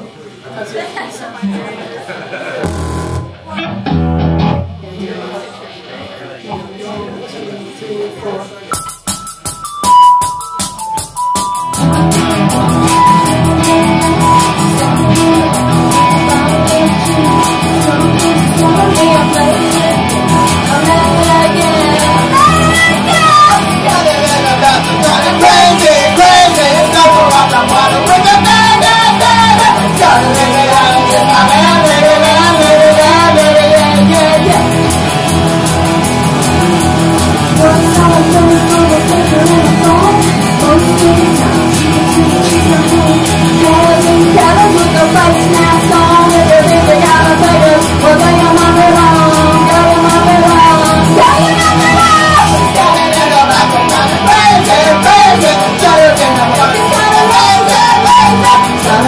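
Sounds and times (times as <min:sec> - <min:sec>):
keyboard holding notes: 0:02.6 - 0:04.7
electric guitar: 0:02.6 - 0:05.0, 0:08.8 - 0:59.0
woman singing: 0:14.1 - 0:34.7, 0:37.5 - 0:59.0.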